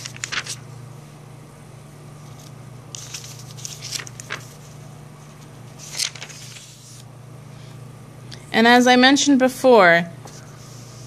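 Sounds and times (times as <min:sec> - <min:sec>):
paper pages turning: 0:00.0 - 0:00.7, 0:02.2 - 0:07.1
steady low hum: 0:00.0 - 0:11.0.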